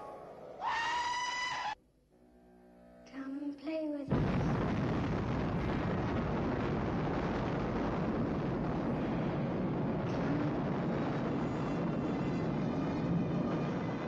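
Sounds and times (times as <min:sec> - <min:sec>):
explosion blast and rumble: 0:04.1 - 0:14.0.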